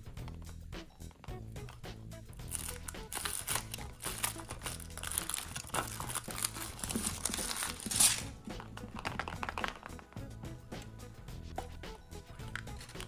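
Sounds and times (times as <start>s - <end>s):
foil wrapper crinkling and tearing: 2.4s - 10.0s, 12.5s - 13.0s.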